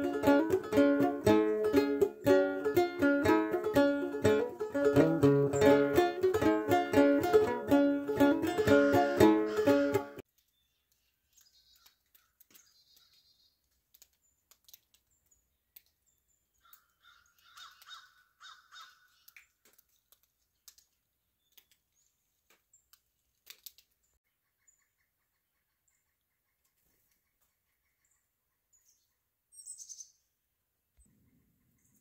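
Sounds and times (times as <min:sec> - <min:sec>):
banjo playing: 0:00.0 - 0:10.2
faint crow caws: 0:16.6 - 0:19.4.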